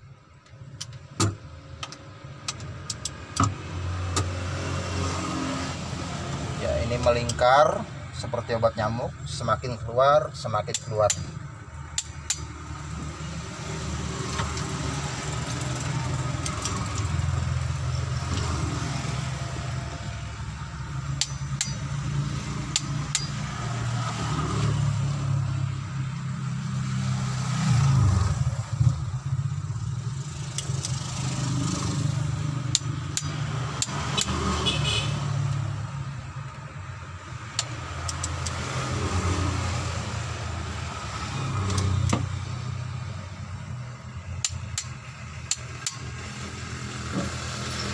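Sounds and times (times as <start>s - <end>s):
vehicle engine rumbling: 0.0s - 47.9s
torque wrench clicks: 11.9s - 12.5s, 15.8s - 17.1s, 22.7s - 23.4s, 30.5s - 31.1s, 32.7s - 34.4s, 37.5s - 38.6s, 44.4s - 46.1s.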